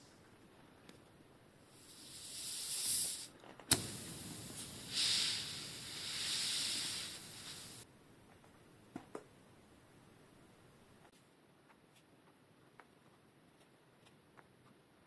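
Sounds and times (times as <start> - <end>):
air hissing out of inner tube: 1.6 - 7.9.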